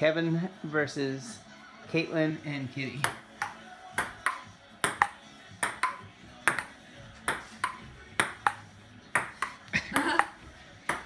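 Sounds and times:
ping-pong ball bouncing and struck: 3.0 - 11.0.

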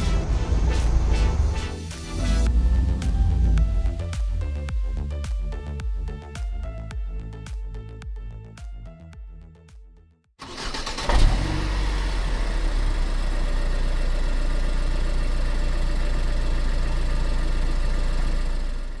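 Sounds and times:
engine starting and revving: 10.4 - 14.6
engine idling with low rumble: 11.6 - 19.0.

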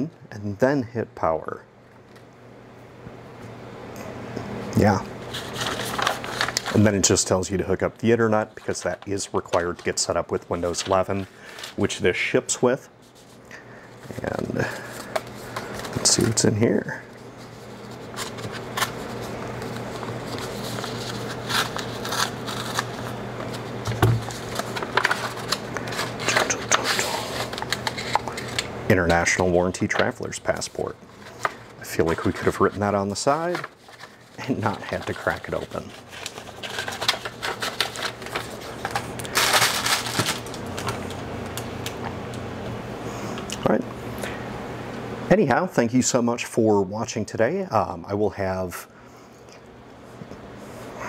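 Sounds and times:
stiff paper rustling and crinkling: 4.8 - 13.4, 14.0 - 42.1.

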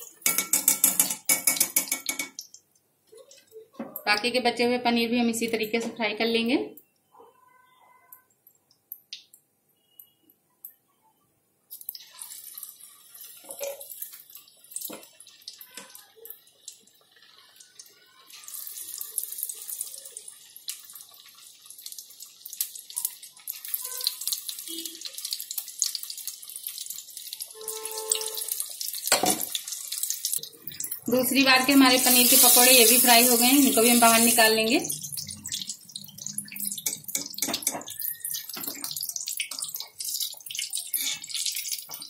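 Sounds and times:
deep-frying sizzle: 11.7 - 42.0.

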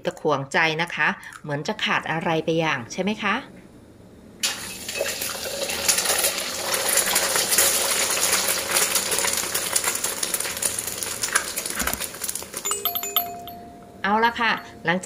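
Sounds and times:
egg frying in hot oil: 4.4 - 12.6.

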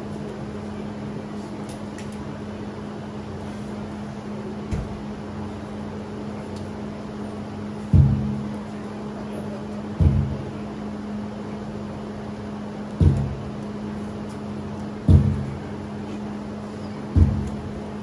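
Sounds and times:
fan humming: 0.0 - 18.0
dull low thuds: 7.8 - 8.5, 10.0 - 10.5, 13.0 - 13.6, 15.0 - 15.6, 17.1 - 17.8.

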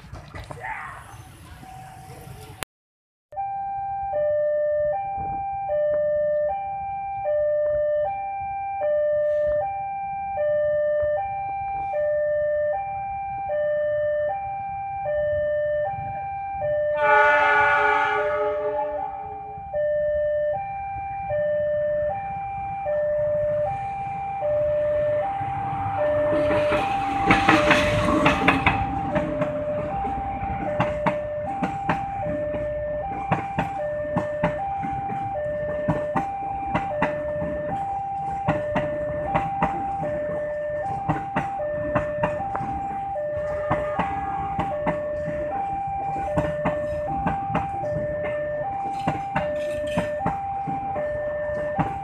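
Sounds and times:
train passing: 0.0 - 2.6, 9.2 - 52.0
locomotive horn blast: 17.0 - 19.5
wheels clacking over rail joints: 25.6 - 52.0.

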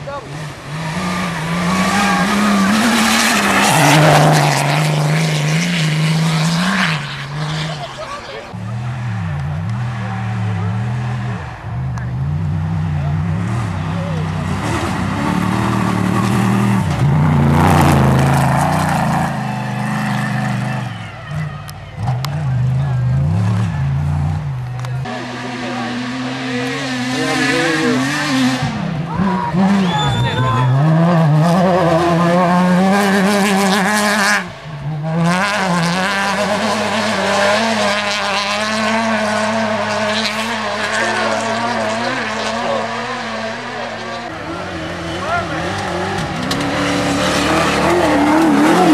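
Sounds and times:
car engine accelerating past: 0.3 - 48.9.

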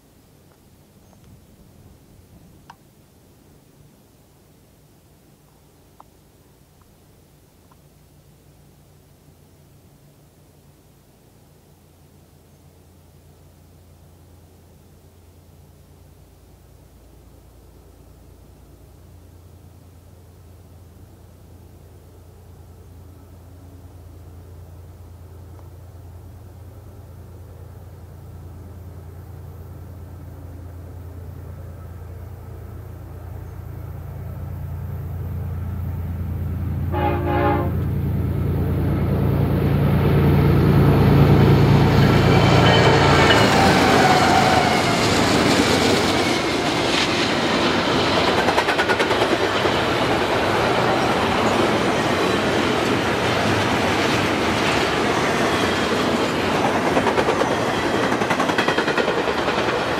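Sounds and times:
diesel locomotive engine: 8.2 - 59.9
wheels rumbling on rails: 16.7 - 59.9
train horn blast: 36.8 - 38.1.

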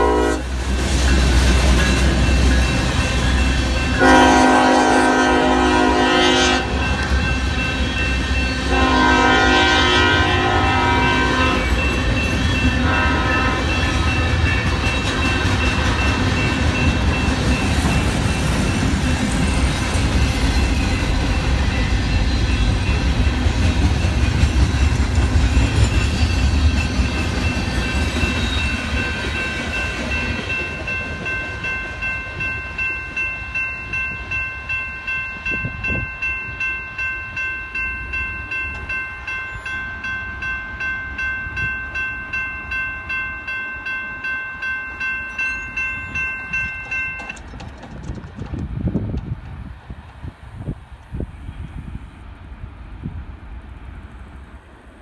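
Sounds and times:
crossing bell ringing: 0.0 - 47.5
freight train rumbling past: 0.0 - 55.0
train wheels clattering: 11.6 - 32.1, 45.4 - 50.3.

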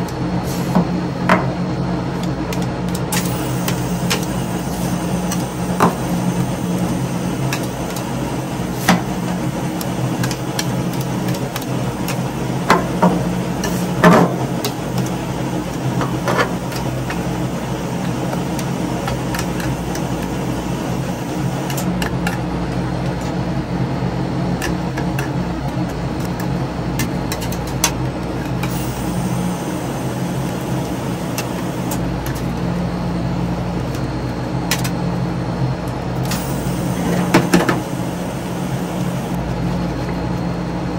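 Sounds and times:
machine hum: 0.0 - 40.9.

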